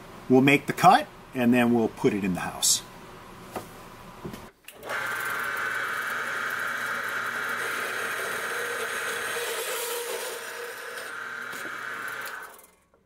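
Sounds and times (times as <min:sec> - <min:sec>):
band saw cutting metal pipe: 0:04.9 - 0:12.6.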